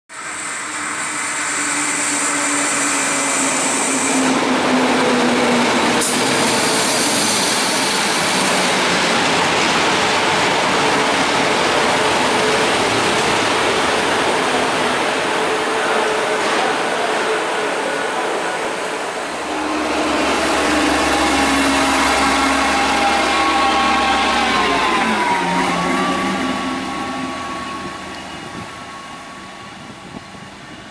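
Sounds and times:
train wheels rumbling on rail: 0.1 - 30.9
falling hum: 19.2 - 30.0
high whine: 19.2 - 30.4.

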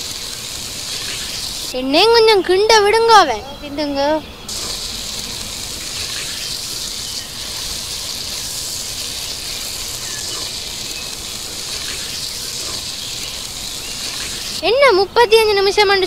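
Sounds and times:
curry boiling with bubbling hiss: 0.0 - 1.9, 4.5 - 14.7.

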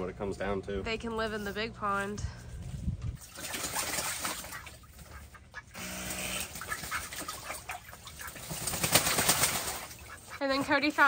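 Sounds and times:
ducks splashing in water: 3.2 - 11.0
duck quack: 4.2 - 8.6, 9.5 - 11.0.

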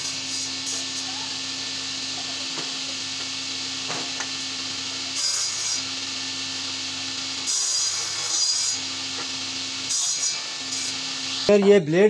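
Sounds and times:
saw cutting chipboard: 0.0 - 11.6
table saw blade humming: 0.0 - 11.6.

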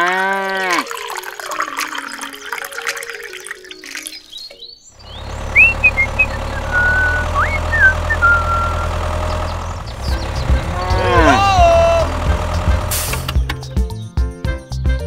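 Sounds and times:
high whistled chirps: 4.0 - 9.7
tractor engine idling: 5.0 - 13.6.

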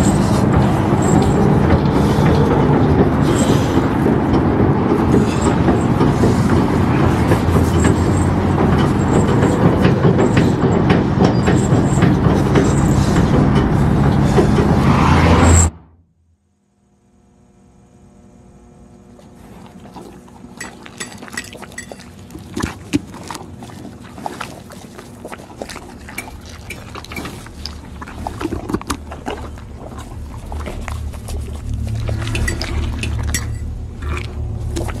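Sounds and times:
low steady hum: 15.7 - 35.0.

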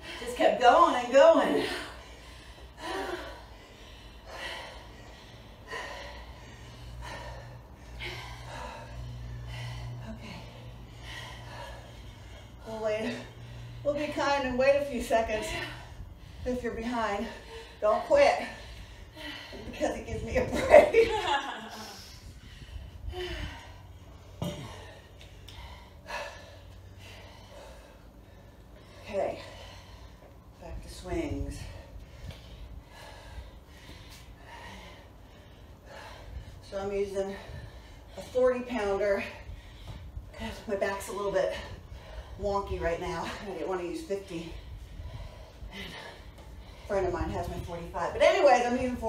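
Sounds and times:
person breathing hard: 1.4 - 14.2, 21.1 - 30.6, 31.6 - 38.4, 44.2 - 47.6.

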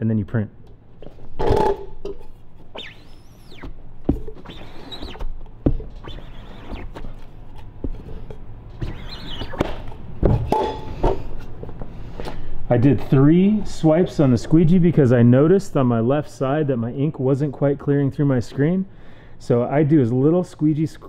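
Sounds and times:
squeegee scraping screen: 2.7 - 5.3, 5.9 - 9.8.

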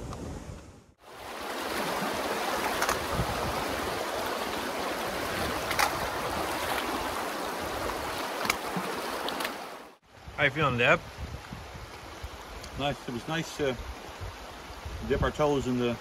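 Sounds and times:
river rushing over stones: 1.0 - 10.2.

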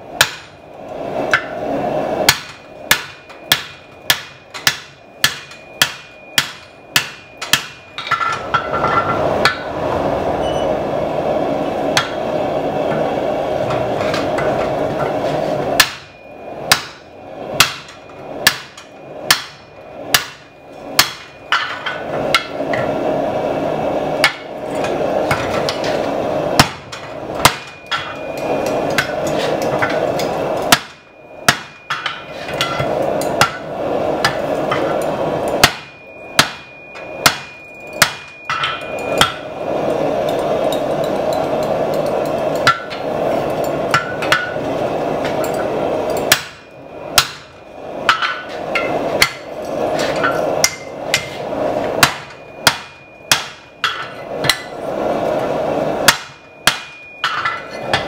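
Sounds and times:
hammer ringing on steel: 2.3 - 8.2, 15.8 - 22.6, 30.7 - 34.4, 35.6 - 39.5, 46.3 - 47.5, 52.0 - 54.7, 56.1 - 58.0
steady rushing noise: 5.4 - 56.3.

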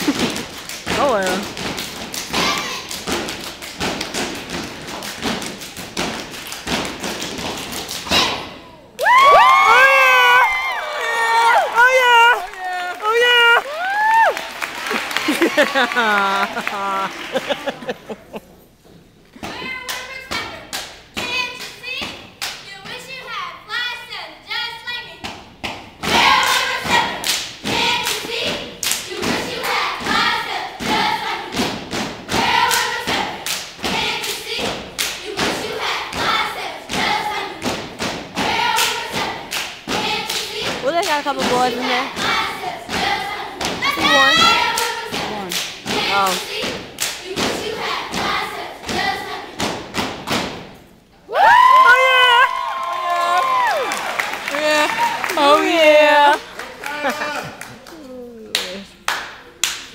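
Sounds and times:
rhythmic foot stomps: 0.0 - 8.4, 25.2 - 50.8
hand claps: 12.4 - 18.0, 37.6 - 42.3, 56.4 - 59.9
children chanting in unison: 41.9 - 49.8.

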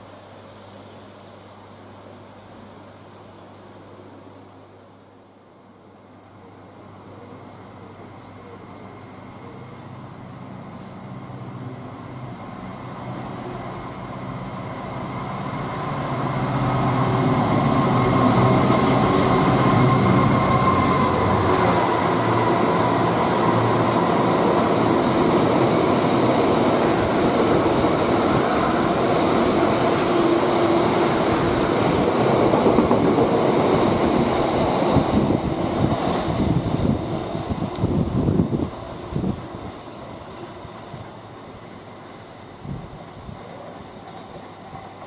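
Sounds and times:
diesel locomotive engine passing: 7.0 - 45.0
high engine whine: 8.7 - 40.7.

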